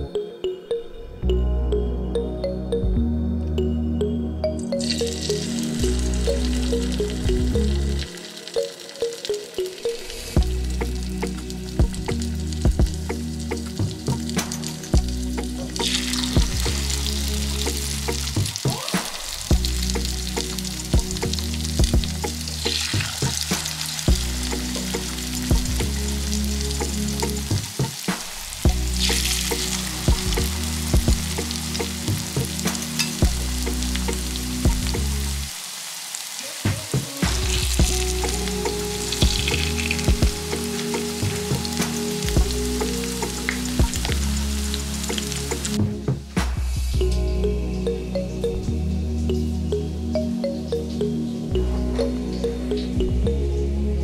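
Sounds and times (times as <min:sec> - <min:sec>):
background music: 0:00.0 - 0:35.7, 0:36.5 - 0:54.0
pancakes sizzling in oil: 0:15.8 - 0:45.8.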